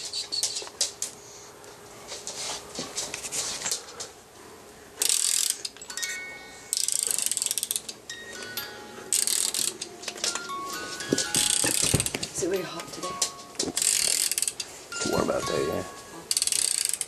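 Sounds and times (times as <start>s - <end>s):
music box ratchet clicks: 5.0s - 6.1s, 6.7s - 8.0s, 8.6s - 10.5s, 11.2s - 12.2s, 13.0s - 14.7s, 16.3s - 17.0s
music box bell-like notes: 5.9s - 6.8s, 8.1s - 13.7s, 14.9s - 16.3s.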